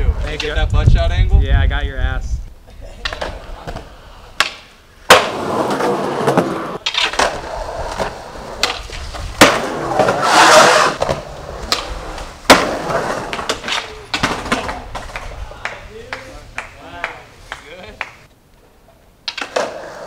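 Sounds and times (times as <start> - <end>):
skateboard wheels rolling on concrete: 0.0 - 20.0
skateboard clacking: 3.0 - 18.3, 19.2 - 20.0.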